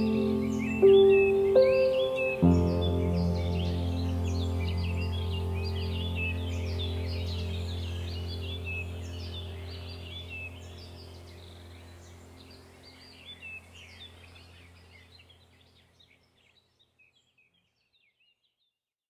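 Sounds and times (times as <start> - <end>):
steady low hum: 0.0 - 15.7
small birds chirping: 0.0 - 18.8.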